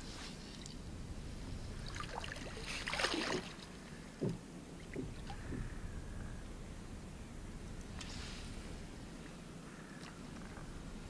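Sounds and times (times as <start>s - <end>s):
shallow water sloshing and splashing: 1.8s - 5.8s.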